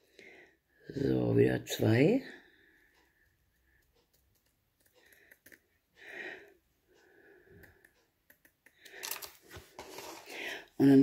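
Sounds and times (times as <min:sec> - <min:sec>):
soft breath: 0:04.9 - 0:08.1, 0:10.0 - 0:10.8.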